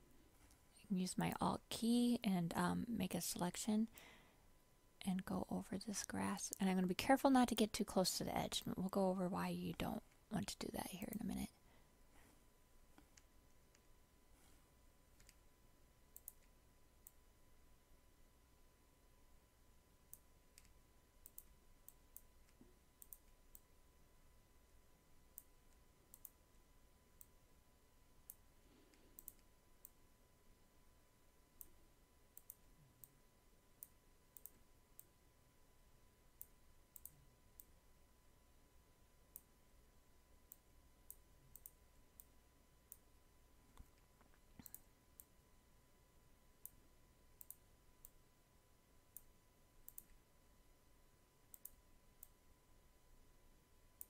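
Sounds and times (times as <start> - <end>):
faint steady tone: 0.0 - 54.0
computer mouse clicks: 15.2 - 15.4, 16.1 - 17.2, 20.1 - 23.7, 25.3 - 26.6, 27.2 - 27.4, 28.2 - 30.0, 31.6 - 33.2, 33.8 - 35.2, 36.4 - 37.8, 39.3 - 39.5, 40.4 - 43.1, 43.7 - 45.4, 46.6 - 46.8, 47.4 - 48.2, 49.1 - 50.2, 51.5 - 52.4.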